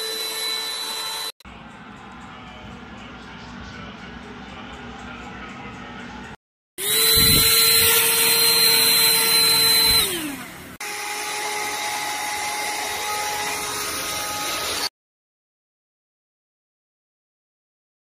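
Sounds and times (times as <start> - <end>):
vacuum motor whining: 0.0 - 1.4, 6.8 - 14.9.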